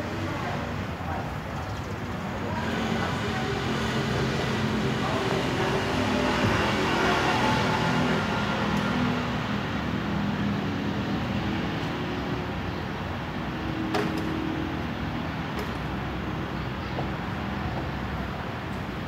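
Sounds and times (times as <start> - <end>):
traffic rumble: 0.0 - 19.0.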